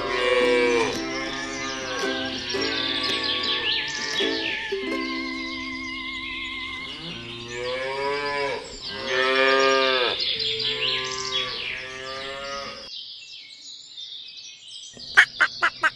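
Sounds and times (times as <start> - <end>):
cows mooing: 0.0 - 4.8, 6.1 - 12.9
birds chirping: 0.0 - 15.9.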